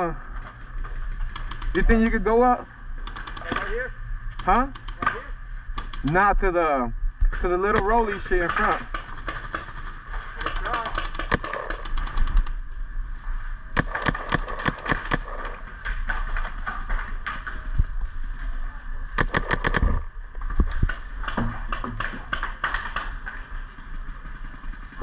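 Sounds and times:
paintball markers firing: 0:01.2 - 0:02.2, 0:03.0 - 0:03.7, 0:04.3 - 0:06.2, 0:07.7 - 0:12.6, 0:13.8 - 0:17.5, 0:19.2 - 0:20.0, 0:20.7 - 0:23.6.

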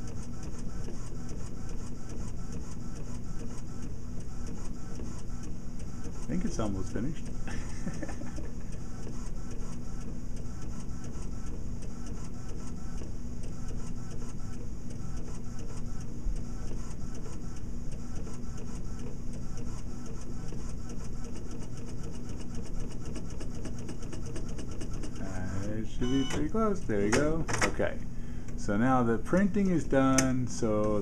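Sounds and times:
inkjet printer whirring and ticking: 0:00.0 - 0:31.0.

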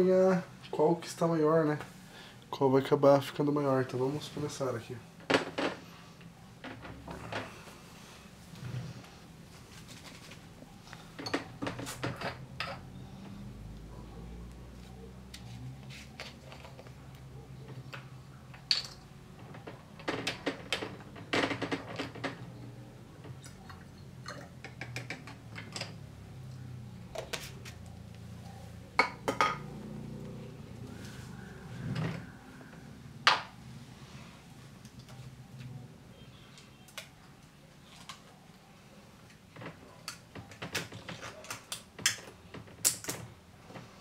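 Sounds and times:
glass and plastic clinks: 0:23.4 - 0:26.0.

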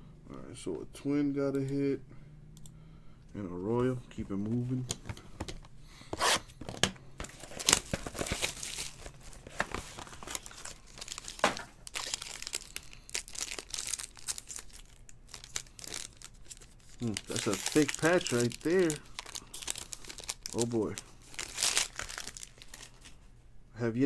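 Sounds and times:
plastic wrapping crinkling: 0:07.2 - 0:23.3
wrapper tearing: 0:07.3 - 0:23.2.

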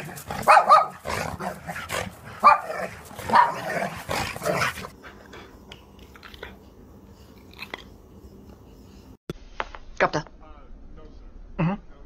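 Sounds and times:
dog barking: 0:00.0 - 0:01.7, 0:02.4 - 0:04.0.

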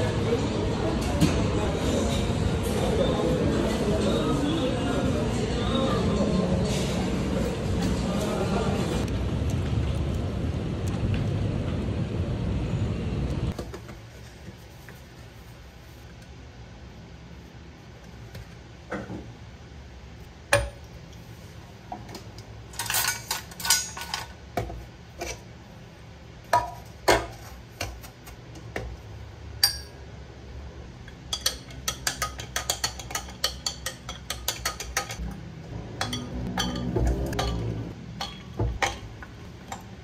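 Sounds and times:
spoon clinking glassware: 0:29.6 - 0:30.0, 0:31.1 - 0:35.2, 0:36.0 - 0:39.0.

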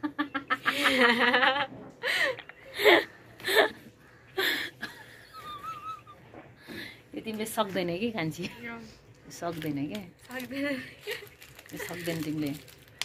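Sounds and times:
woman laughing hard: 0:04.4 - 0:06.2.

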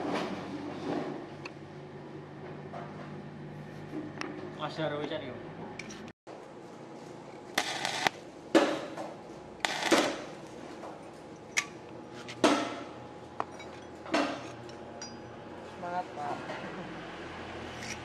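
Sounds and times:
arc welder crackling: 0:07.5 - 0:08.8, 0:09.5 - 0:10.6.

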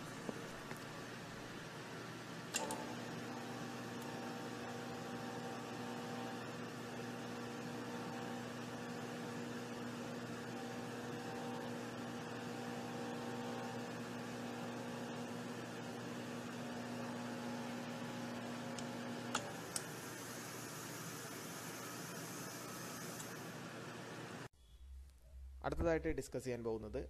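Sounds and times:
click: 0:02.5 - 0:02.8, 0:18.7 - 0:19.9, 0:23.2 - 0:23.4.

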